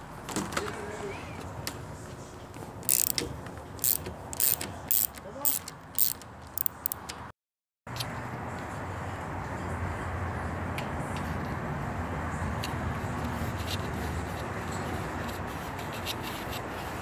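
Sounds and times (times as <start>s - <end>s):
ratchet wrench ratcheting: 2.8s - 3.2s, 3.8s - 7.1s.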